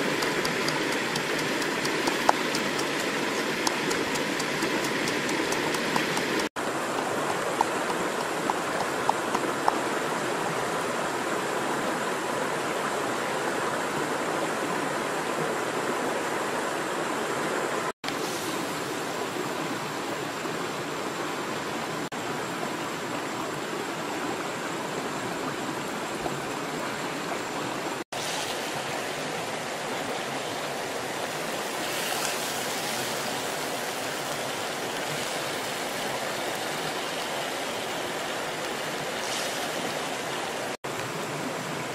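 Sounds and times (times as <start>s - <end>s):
pestle pounding in mortar: 0.0s - 9.8s.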